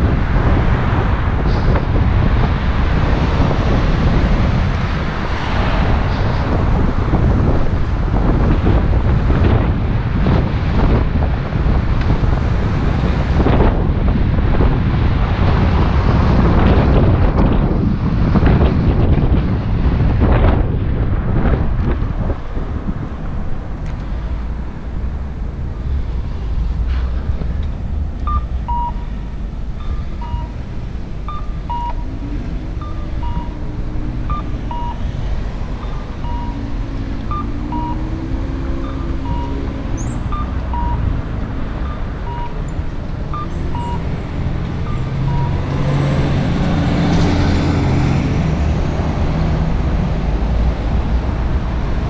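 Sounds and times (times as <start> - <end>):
road traffic rumble: 0.0 - 52.0
vehicle passing close: 24.2 - 52.0
two-tone electronic beeper: 28.3 - 29.1, 29.8 - 30.6, 31.3 - 32.1, 32.8 - 33.6, 34.3 - 35.0, 35.8 - 36.7, 37.3 - 38.1, 38.8 - 41.1, 41.8 - 42.6, 43.3 - 44.1, 44.8 - 45.6.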